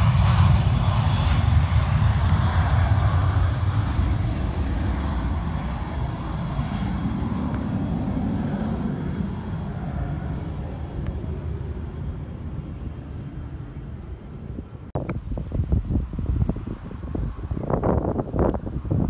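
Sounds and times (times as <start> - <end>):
jet climbing after takeoff: 0.0 - 19.0.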